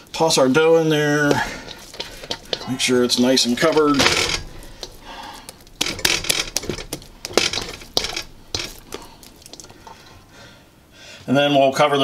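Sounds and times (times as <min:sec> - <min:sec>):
dough slapping in a bowl: 0:01.1 - 0:10.0
metal bowl clicking and knocking: 0:01.2 - 0:10.2.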